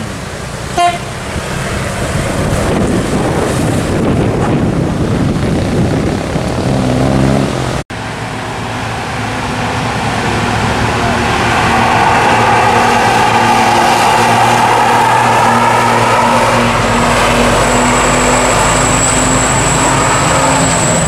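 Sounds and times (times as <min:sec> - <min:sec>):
buses passing: 0:00.0 - 0:21.0
bus horn toot: 0:00.8 - 0:01.2.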